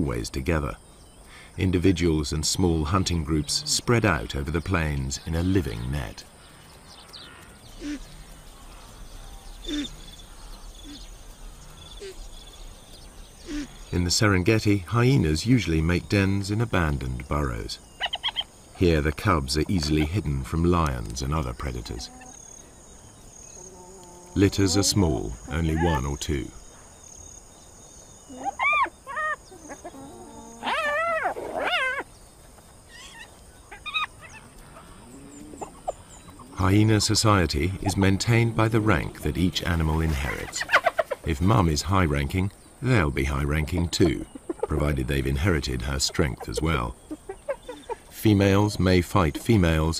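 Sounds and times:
low animal calls: 0:06.4 - 0:14.0, 0:23.4 - 0:26.7, 0:28.2 - 0:32.1, 0:32.8 - 0:41.4, 0:43.0 - 0:49.5
hyena cub squealing: 0:13.4 - 0:13.8, 0:18.0 - 0:18.5, 0:28.3 - 0:32.1, 0:32.9 - 0:36.6, 0:46.4 - 0:48.9.

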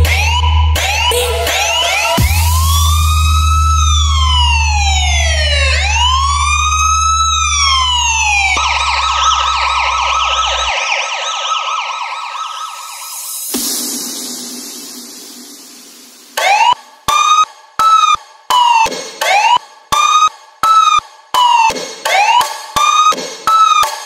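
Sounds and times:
police siren wailing and yelping: 0:00.0 - 0:13.4, 0:16.4 - 0:17.4, 0:18.0 - 0:23.9
deep bass note: 0:02.2 - 0:10.1.

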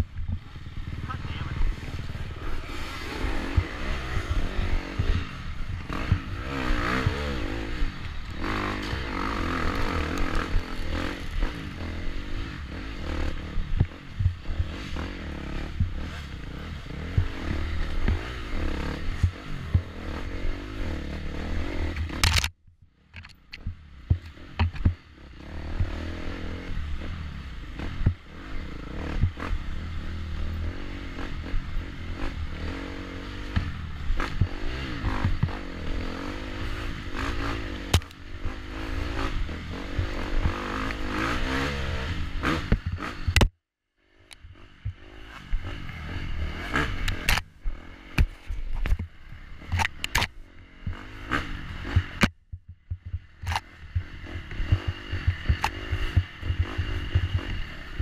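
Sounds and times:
dirt bike engine revving: 0:00.0 - 0:22.5, 0:23.6 - 0:43.5, 0:44.1 - 0:58.0
bike knocks and rattles: 0:22.0 - 0:25.0.

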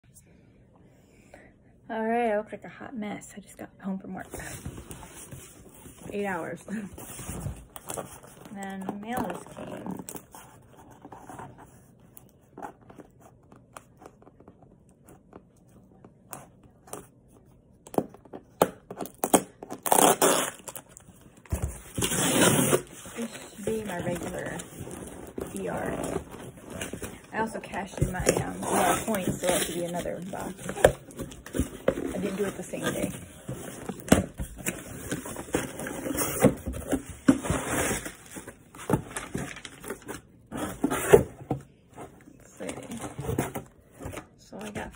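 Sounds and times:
cardboard tape tearing: 0:19.0 - 0:21.0, 0:21.9 - 0:25.2
cardboard box being opened: 0:21.5 - 0:44.8.

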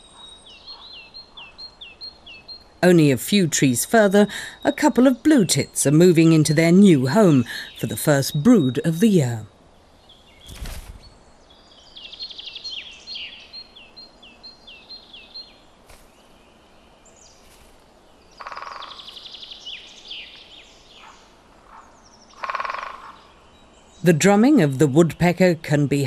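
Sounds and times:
songbird chirping: 0:00.0 - 0:26.0
other bird calls: 0:17.2 - 0:24.0
woodpecker drumming: 0:18.3 - 0:20.4, 0:21.0 - 0:23.3.

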